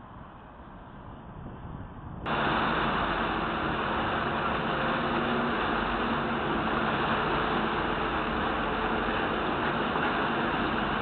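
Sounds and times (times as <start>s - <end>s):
diesel engines rumbling: 2.3s - 11.0s.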